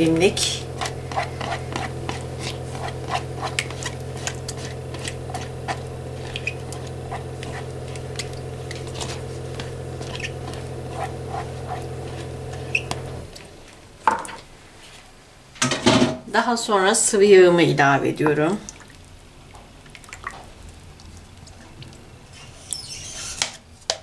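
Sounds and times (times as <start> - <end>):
steady low hum: 0.0 - 15.5
spatula scraping yogurt from cup: 0.5 - 13.2.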